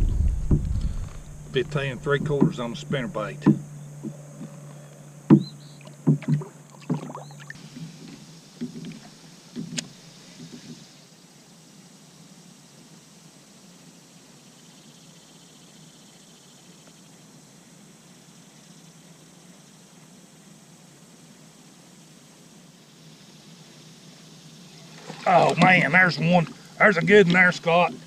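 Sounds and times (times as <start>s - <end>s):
faint steady hiss: 0.0s - 28.0s
knocks and clatter in a kayak: 5.3s - 10.8s, 25.0s - 27.5s.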